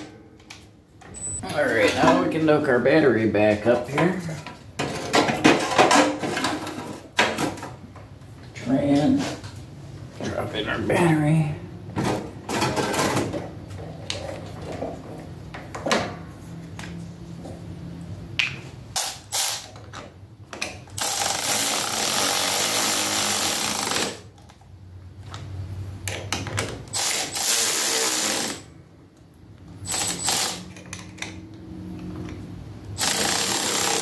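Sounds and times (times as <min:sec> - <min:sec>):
electric ratchet running: 0:19.0 - 0:19.7, 0:20.9 - 0:24.3, 0:26.9 - 0:28.7, 0:29.8 - 0:30.8, 0:33.0 - 0:34.0.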